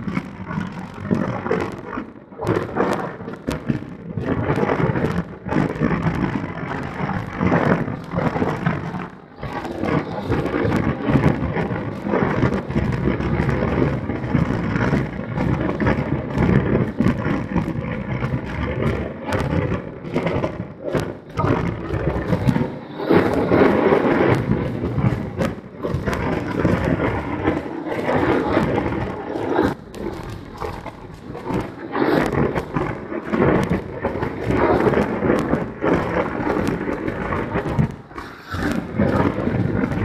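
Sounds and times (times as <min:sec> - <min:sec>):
wind buffeting microphone: 0:08.6 - 0:40.0.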